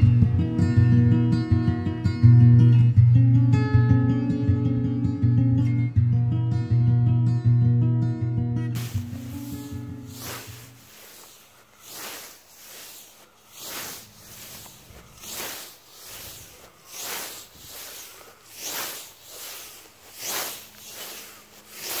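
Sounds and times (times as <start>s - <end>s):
scythe swishing through grass: 8.8s - 22.0s.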